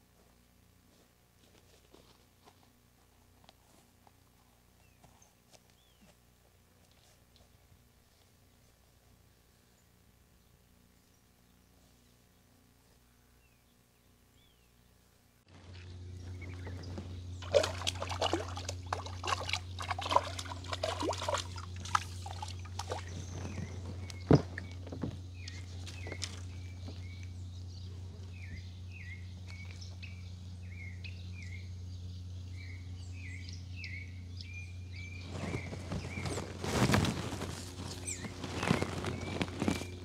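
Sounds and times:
steady low hum: 0.0 - 40.0
bird chirping: 15.7 - 19.0, 19.6 - 36.9, 37.8 - 40.0
fish splashing in water: 17.4 - 24.8.

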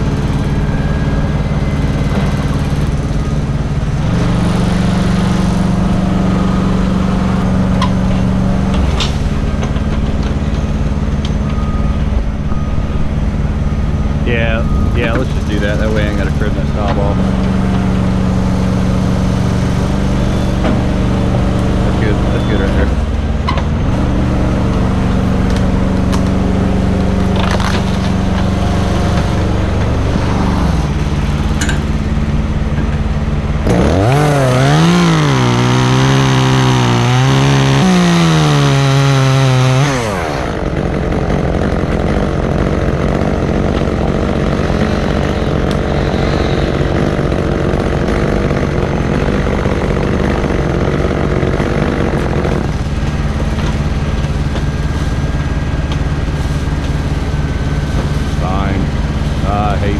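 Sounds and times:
machine engine droning: 0.0 - 59.9
chainsaw cutting tree limb: 33.6 - 59.4.

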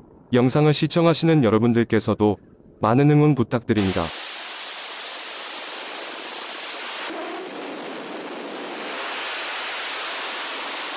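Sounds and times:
rocket engines roaring at liftoff: 5.6 - 10.9.

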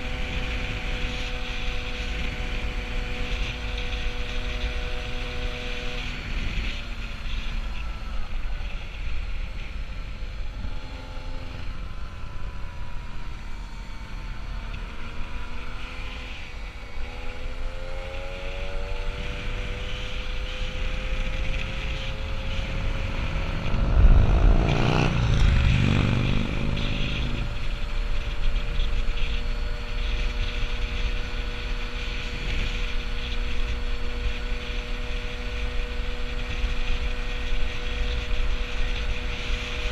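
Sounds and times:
wind noise on microphone: 0.0 - 11.8, 16.4 - 39.9
moped engine running: 19.3 - 39.8
vehicle passing by: 20.7 - 27.5.

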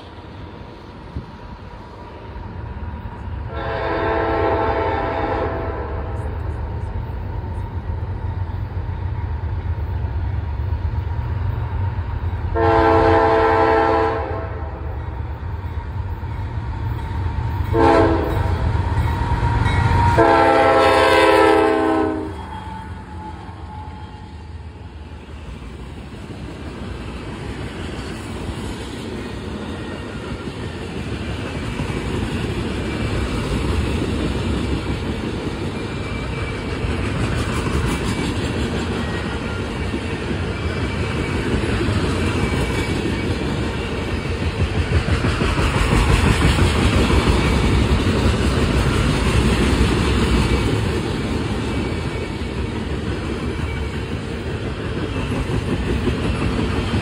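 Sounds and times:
train rolling past: 0.0 - 57.0
locomotive air horn: 3.5 - 6.2, 12.6 - 14.8, 17.7 - 18.6, 20.1 - 24.5.

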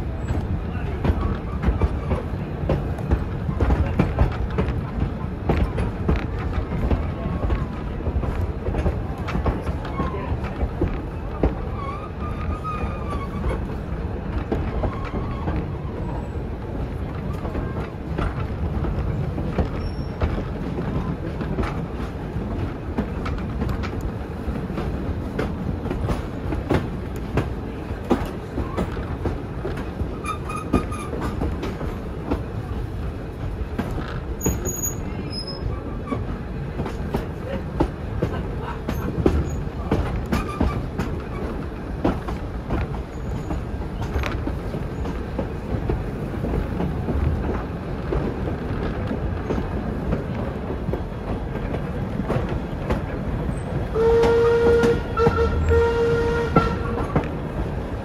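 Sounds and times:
train carriages rumbling on track: 0.0 - 58.0
wheels clicking over rail joints: 0.0 - 58.0
wheels squealing on curve: 11.7 - 13.6.

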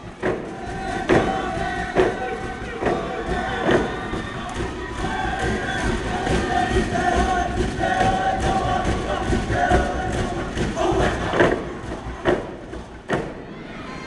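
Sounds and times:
drum beat: 0.0 - 13.4
crowd noise: 0.0 - 14.0
boys singing in unison: 0.2 - 13.3.

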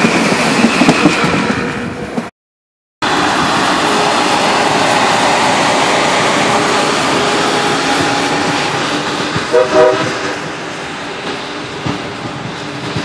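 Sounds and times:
train passing at speed: 0.0 - 2.3, 3.0 - 13.0
train horn blast: 9.5 - 10.4.

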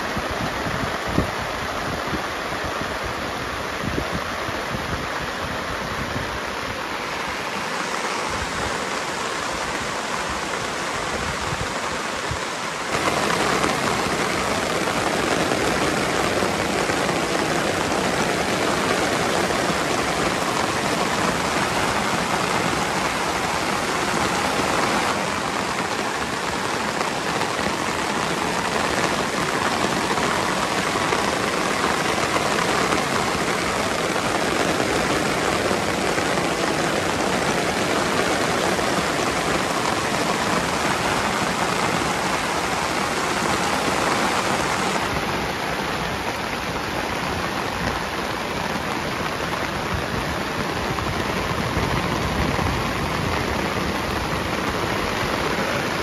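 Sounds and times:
heavy rain falling: 0.0 - 56.0
rain pattering on a tarp: 0.0 - 56.0.

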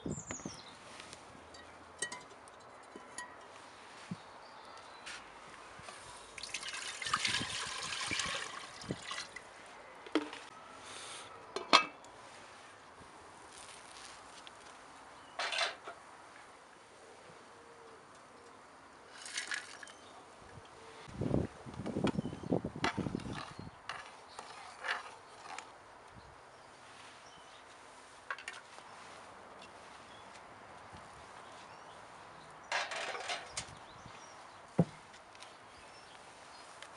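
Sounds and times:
glass lid clinking on pot: 1.6 - 2.3
water pouring into metal pot: 6.4 - 9.4
metal spatula scraping a pot: 23.1 - 25.7.

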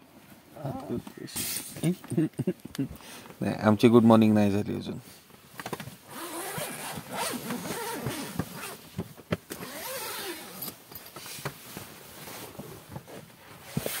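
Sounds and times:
tent fabric rustling: 6.0 - 9.0, 9.6 - 14.0
zipper pulled open: 6.1 - 8.8, 9.5 - 10.8, 13.6 - 14.0.

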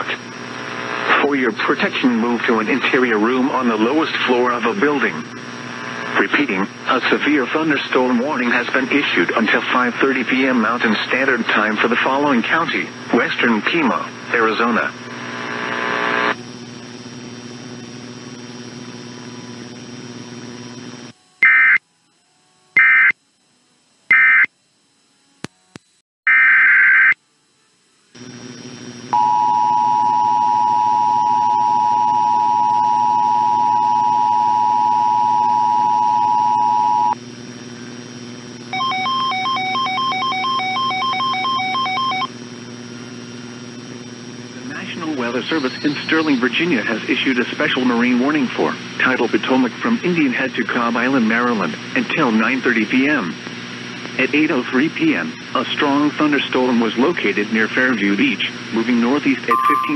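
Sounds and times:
low broadcast hum: 0.0 - 26.0, 27.1 - 59.9
screeching digital data bursts: 21.4 - 21.8, 22.8 - 23.2, 24.1 - 24.5, 38.7 - 42.3, 44.7 - 47.3
two-note attention signal: 59.5 - 59.9.

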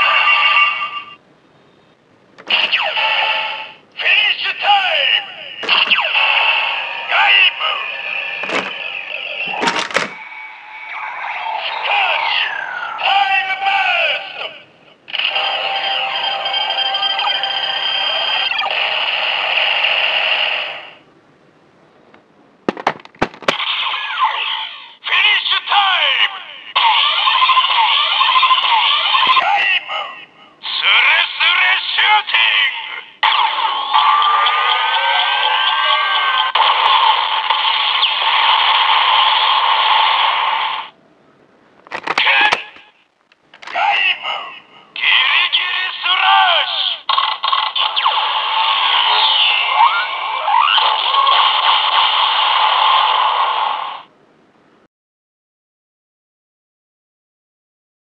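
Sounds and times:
toy electronic sound effect: 2.4 - 4.3, 5.6 - 14.4, 15.1 - 20.8, 23.5 - 25.0, 26.7 - 29.7, 32.6 - 40.9, 42.0 - 42.9, 45.0 - 54.0
toy blaster gliding electronic tones: 2.5 - 3.7, 26.8 - 29.4, 33.4 - 39.4, 47.2 - 52.7
sharp plastic clicks: 41.8 - 43.8
short electronic call: 42.1 - 42.9.

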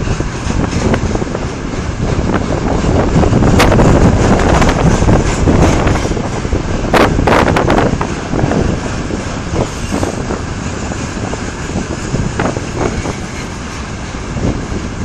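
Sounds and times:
clanks of wheels and couplings: 0.0 - 6.6
freight train rumbling: 0.0 - 15.0.

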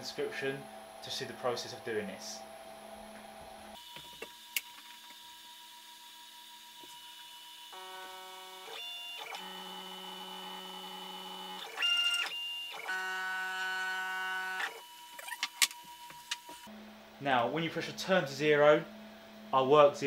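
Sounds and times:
stepper motors whining: 7.7 - 16.7.

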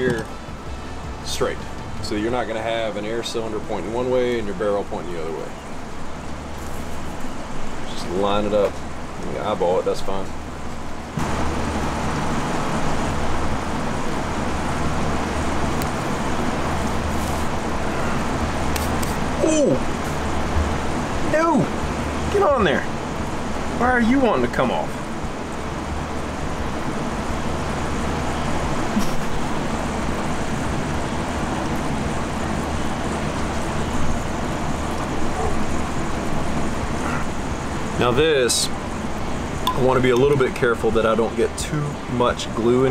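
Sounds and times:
low hum: 0.0 - 8.2
rumble and hiss: 0.0 - 42.9.

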